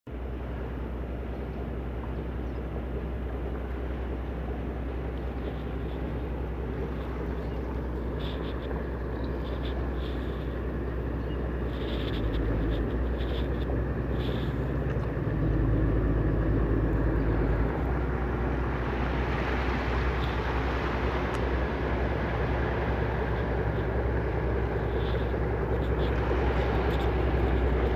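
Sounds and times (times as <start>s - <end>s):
boat engine droning: 0.1s - 27.9s.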